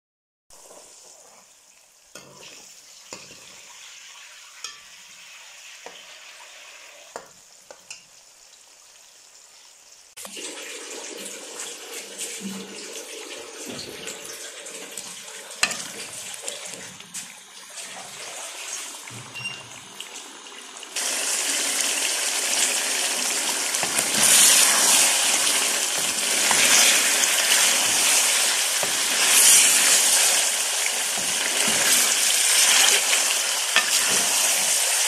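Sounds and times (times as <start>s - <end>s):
onions sizzling in oil: 0.5s - 10.3s, 11.8s - 35.0s
ladle clinking against pot: 15.6s - 16.3s.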